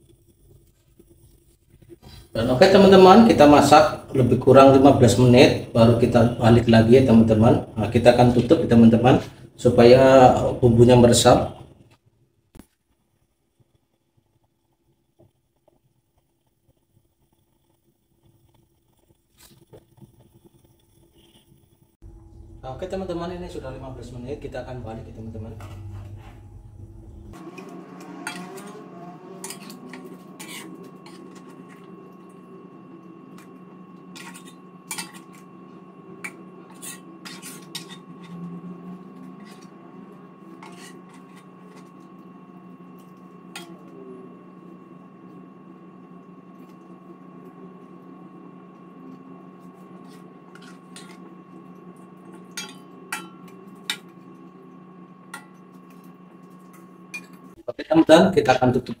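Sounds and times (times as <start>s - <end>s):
low hum: 22.0s - 59.0s
utensils scraping a wok: 27.3s - 32.6s, 33.2s - 42.2s, 49.4s - 54.5s.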